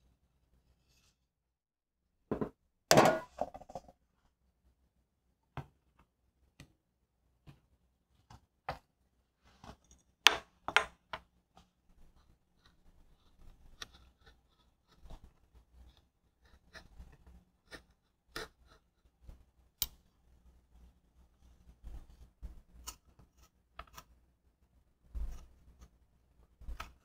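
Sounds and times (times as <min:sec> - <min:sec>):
metal bakeware knocking and clinking: 0:02.3 - 0:03.8.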